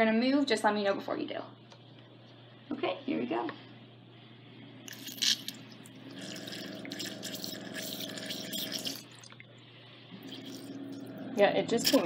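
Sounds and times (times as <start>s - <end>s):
pump humming: 4.9s - 12.0s.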